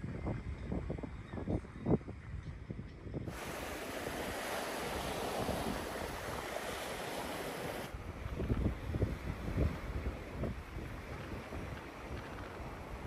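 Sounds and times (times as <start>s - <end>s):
waves washing onto sandy beach: 3.3s - 13.0s.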